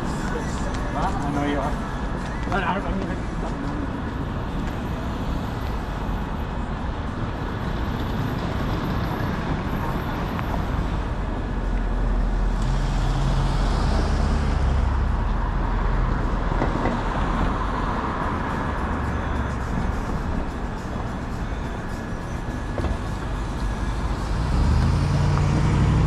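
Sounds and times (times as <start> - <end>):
road traffic noise: 0.0 - 26.0
heavy vehicle engine passing: 7.8 - 26.0.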